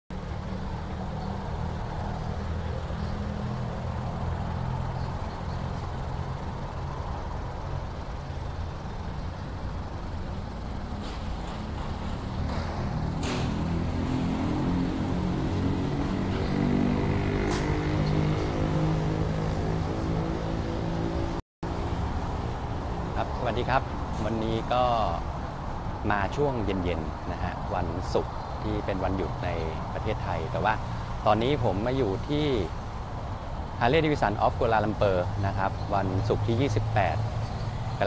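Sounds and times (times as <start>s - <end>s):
second engine: 0.6s - 21.4s.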